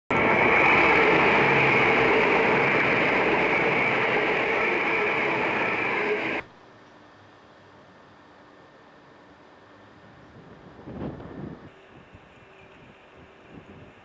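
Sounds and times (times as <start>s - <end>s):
train passing at speed: 0.1s - 6.5s.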